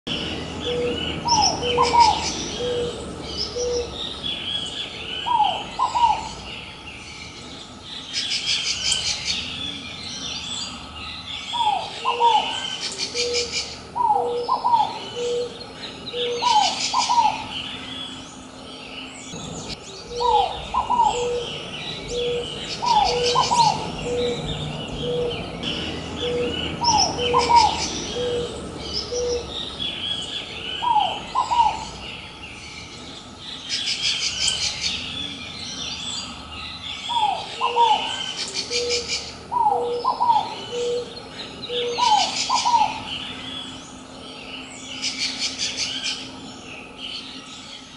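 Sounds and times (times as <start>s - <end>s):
small birds chirping: 0.1s - 47.9s
dove paired higher call: 0.2s - 6.8s, 11.5s - 18.2s, 20.0s - 32.4s, 37.1s - 44.0s
dove low cooing: 0.2s - 6.9s, 11.5s - 18.5s, 19.4s - 32.5s, 37.1s - 46.4s.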